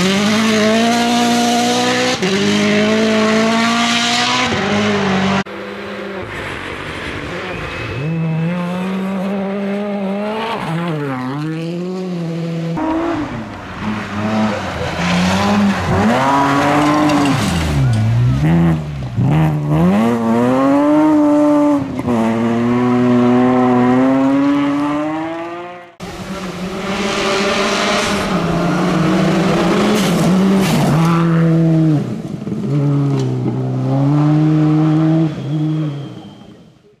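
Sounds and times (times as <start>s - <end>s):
rally car engine revving: 0.0s - 36.4s.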